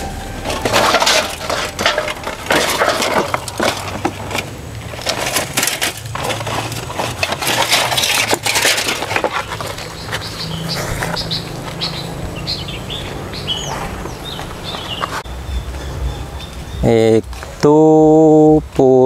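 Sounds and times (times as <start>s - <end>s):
dry leaves crunching: 0.0s - 15.3s
bird chirps: 9.5s - 17.6s.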